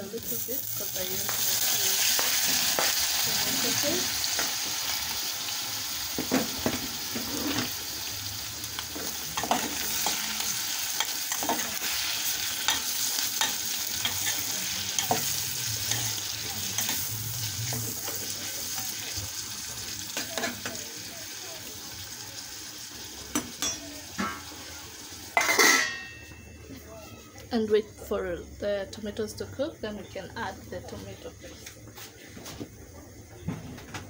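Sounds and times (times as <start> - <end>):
meat sizzling in a pot: 0.0 - 27.0.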